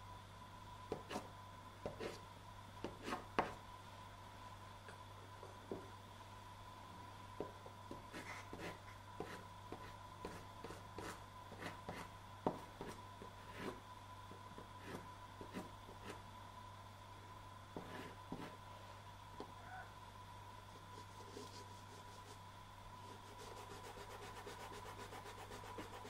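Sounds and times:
faint steady hum: 0:00.0 - 0:26.0
pastel stick scraping on board: 0:02.9 - 0:03.6.

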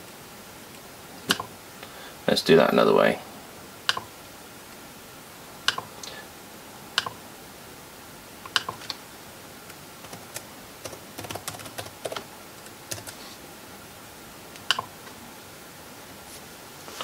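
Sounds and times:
laptop keyboard typing: 0:01.3 - 0:01.5, 0:08.5 - 0:09.0, 0:10.0 - 0:13.2, 0:14.6 - 0:14.9.

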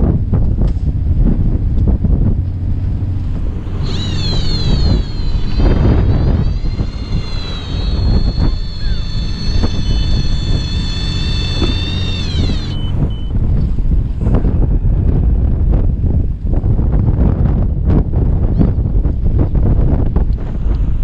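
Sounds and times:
wind rumble on microphone: 0:00.0 - 0:21.0
electric reel motor whining: 0:02.4 - 0:13.8.

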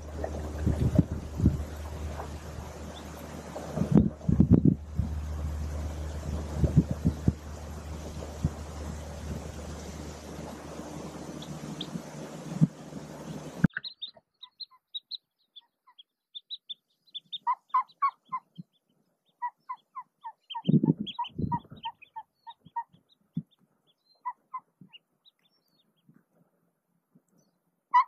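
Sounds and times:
rustle of movement: 0:00.0 - 0:13.7
duck clucking: 0:16.4 - 0:18.6.

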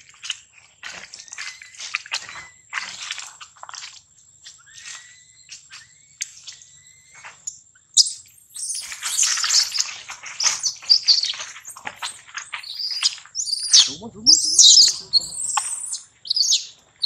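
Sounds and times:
baby monkey screaming: 0:12.6 - 0:16.6.

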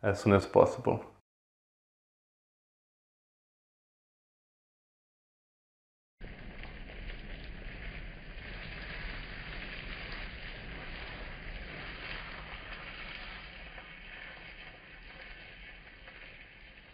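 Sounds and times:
potato frying in hot oil: 0:06.2 - 0:16.9.

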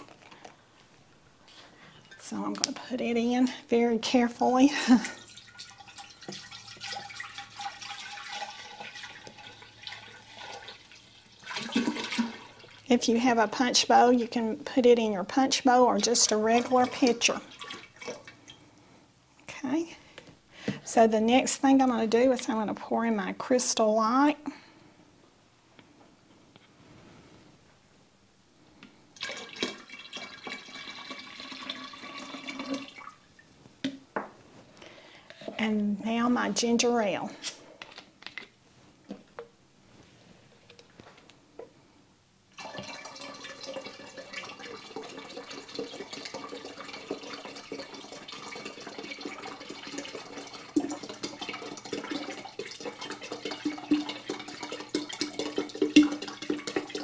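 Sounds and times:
juice pouring into liquid: 0:04.9 - 0:13.0, 0:15.9 - 0:18.6, 0:29.2 - 0:33.5, 0:42.5 - 0:57.0.

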